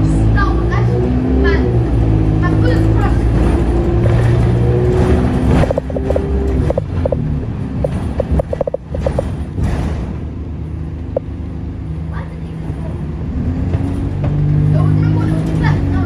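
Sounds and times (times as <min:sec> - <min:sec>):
bus engine hum: 0:00.0 - 0:16.0
road rumble: 0:00.0 - 0:16.0
short rattles: 0:03.5 - 0:10.2.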